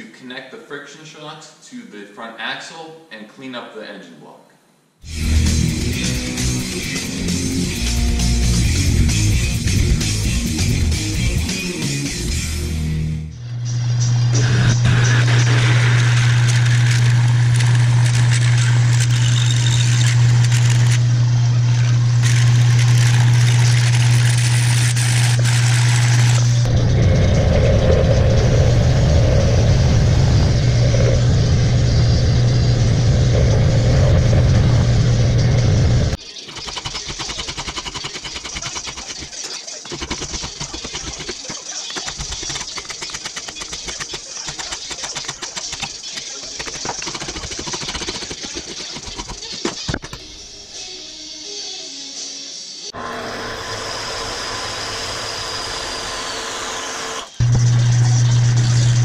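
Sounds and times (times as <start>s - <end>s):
drill boring into metal: 14.4s - 26.7s, 53.0s - 59.0s
metal lathe humming: 53.0s - 59.0s.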